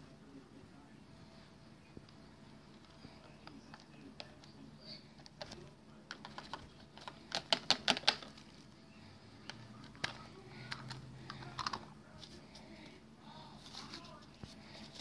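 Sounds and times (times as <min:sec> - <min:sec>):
plastic toy clicks and clatter: 0:10.0 - 0:11.8.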